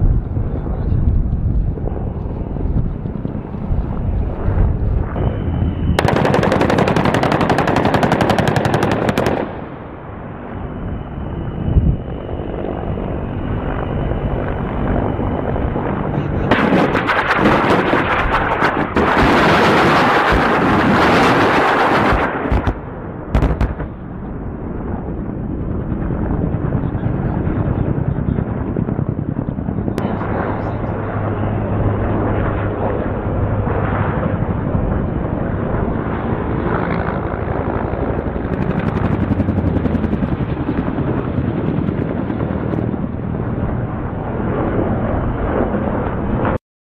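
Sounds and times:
automatic gunfire: 6.0 - 9.5.

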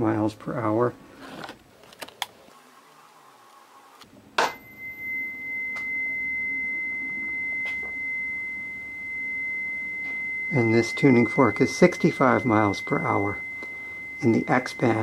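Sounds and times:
tuning fork ringing: 4.4 - 15.0.

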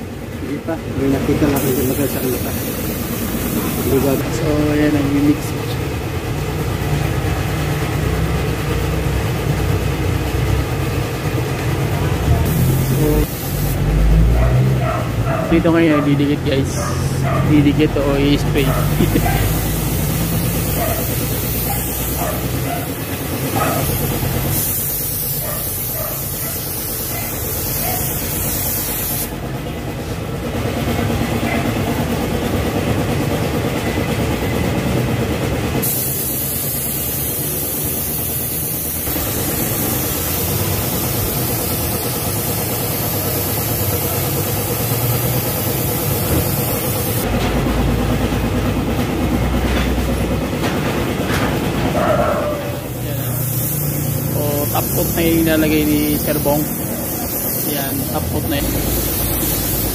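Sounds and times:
paint spray gun hissing: 1.4 - 4.3, 12.4 - 14.0, 18.6 - 29.4, 35.8 - 47.3, 52.8 - 59.9.

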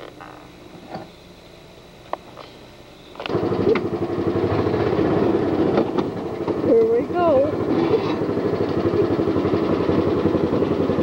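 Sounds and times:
atv engine running: 3.2 - 11.0.

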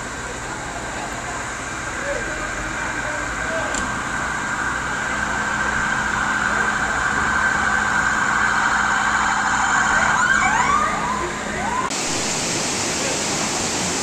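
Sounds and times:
heavy rain hissing: 0.0 - 10.2, 11.0 - 14.0
emergency vehicle siren: 3.9 - 12.2.

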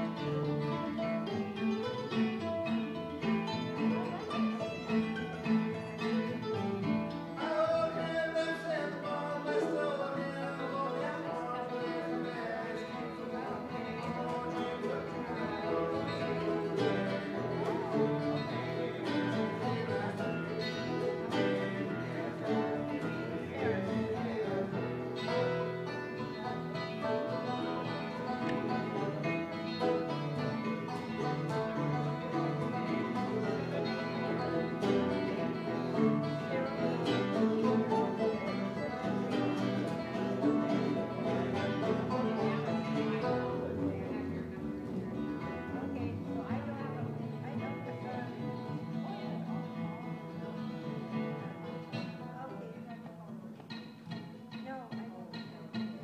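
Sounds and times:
acoustic guitars strumming: 0.0 - 56.0.

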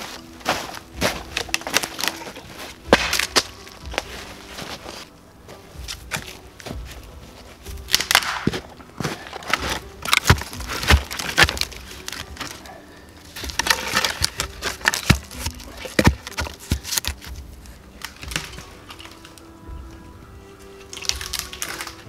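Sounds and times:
twigs snapping: 0.0 - 19.6, 20.6 - 22.0
wooden poles knocking: 7.8 - 12.7, 13.3 - 19.3.

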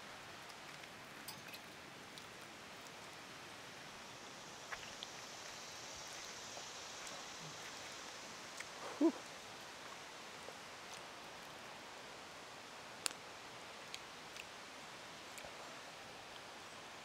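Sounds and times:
faint outdoor hiss: 0.0 - 17.0.

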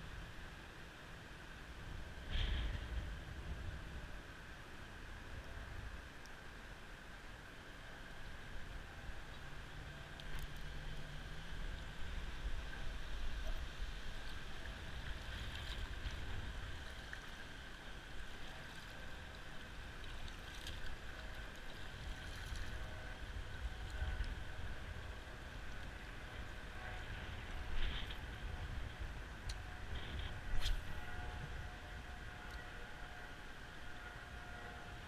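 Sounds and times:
steady low rumble: 0.0 - 35.0
water lapping and gurgling: 0.2 - 35.0.

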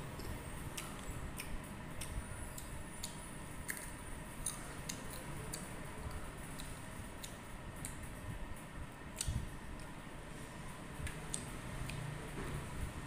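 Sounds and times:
person chewing crisp mango: 0.0 - 8.1.

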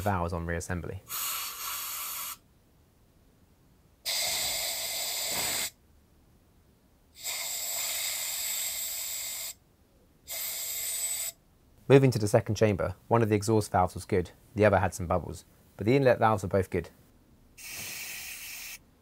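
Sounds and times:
air blow gun hissing: 1.1 - 2.4, 4.1 - 5.8, 17.6 - 18.8.

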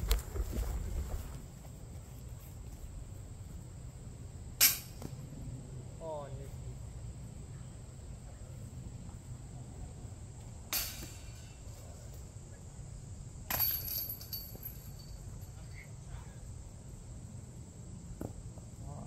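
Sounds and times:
high metallic ringing: 13.5 - 16.0.

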